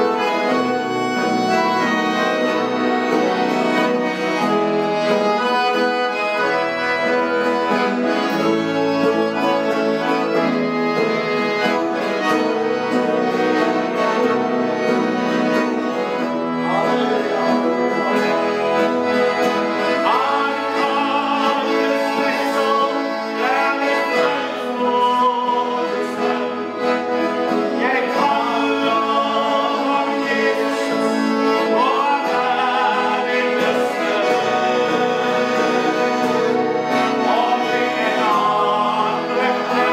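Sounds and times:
acoustic guitar: 0.0s - 39.9s
piano accordion chords: 0.0s - 39.9s
men singing: 16.4s - 39.9s.

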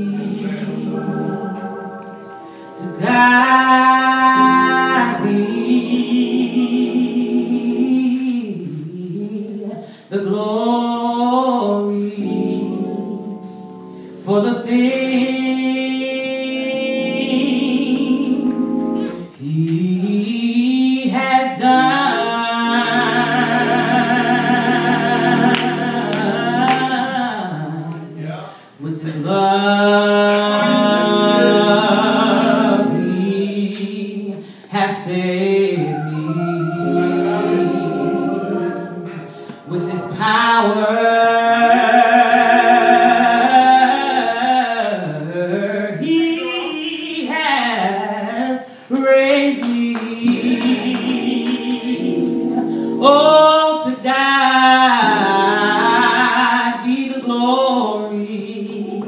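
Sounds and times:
low musical accompaniment: 0.0s - 9.0s, 12.0s - 19.6s, 21.8s - 28.4s, 30.1s - 34.4s, 35.0s - 44.2s, 50.2s - 53.8s
woman singing into microphone: 0.0s - 59.0s.

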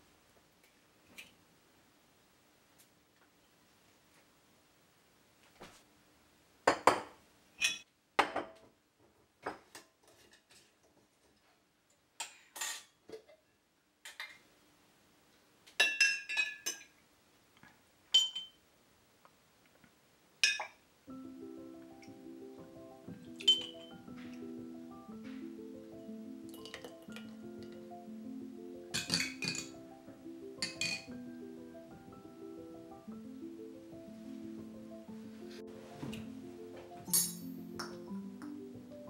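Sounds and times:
glass jar clinks and knocks: 18.2s - 18.6s, 23.4s - 24.0s, 29.0s - 29.8s, 30.6s - 31.1s, 37.0s - 37.6s
ringing glass clinks: 18.2s - 18.6s, 23.4s - 24.0s, 37.1s - 37.6s.

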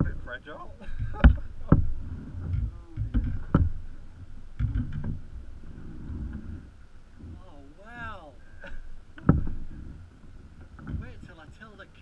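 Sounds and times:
water slapping against hulls: 0.0s - 12.0s
wind rumbling on microphone: 0.0s - 12.0s
sharp knocks: 1.0s - 5.3s.

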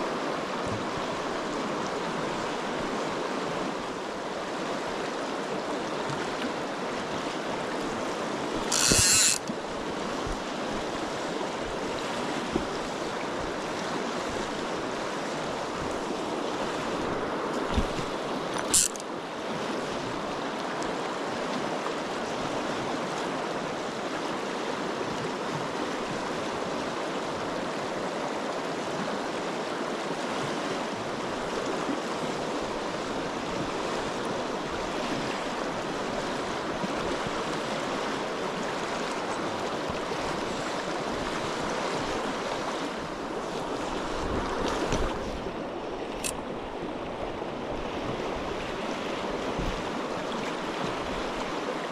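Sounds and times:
river water rushing: 0.0s - 51.9s
sharp click: 8.7s - 9.5s, 18.6s - 19.0s.

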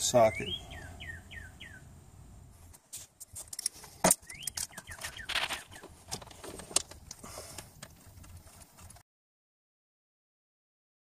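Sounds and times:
bird chirping: 0.0s - 2.0s, 3.8s - 6.2s.

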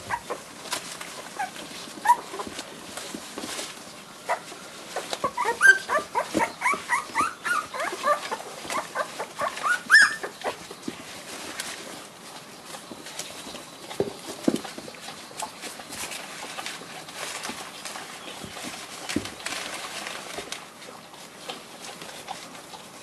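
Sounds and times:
puppies squeaking and whimpering: 0.0s - 0.5s, 1.1s - 2.6s, 4.3s - 10.8s
scuffling on newspaper: 0.0s - 22.6s.

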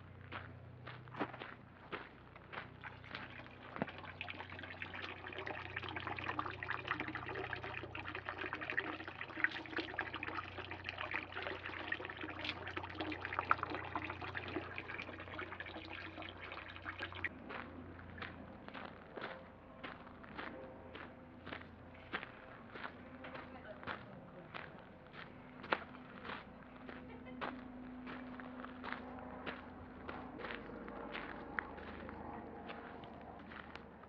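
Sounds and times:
water trickling into stone basin: 2.7s - 17.3s.

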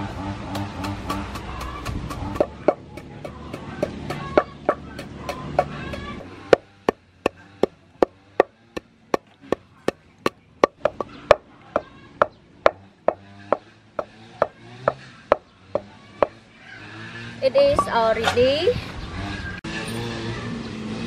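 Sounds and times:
wooden pestle pounding in mortar: 0.5s - 10.0s, 10.6s - 16.4s.

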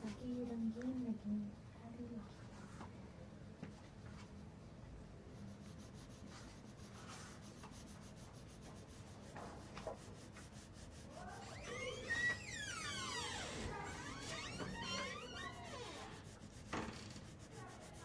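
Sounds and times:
pencil shading on paper: 5.4s - 11.8s, 14.6s - 18.0s.

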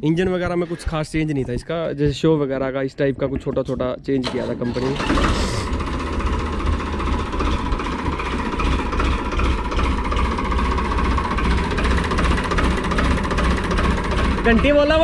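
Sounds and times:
diesel tractor engine idling: 4.6s - 15.0s.

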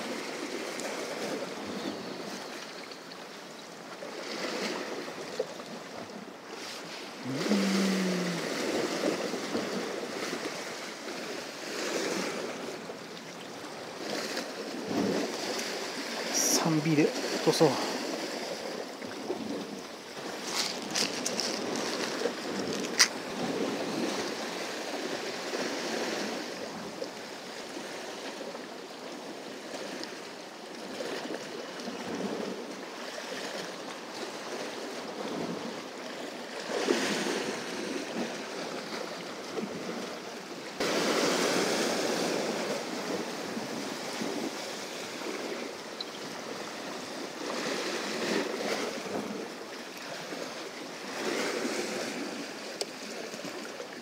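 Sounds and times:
sea waves breaking on rocks: 0.0s - 54.0s.

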